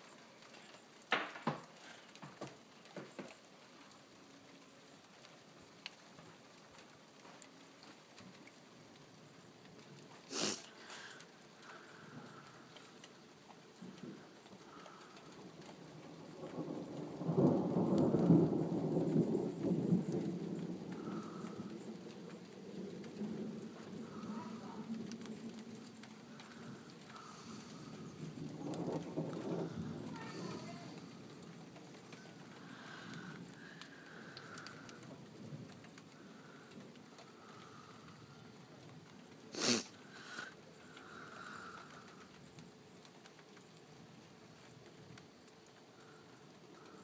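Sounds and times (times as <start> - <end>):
rain falling: 0.0 - 47.0
thunder rumbling: 11.0 - 43.0.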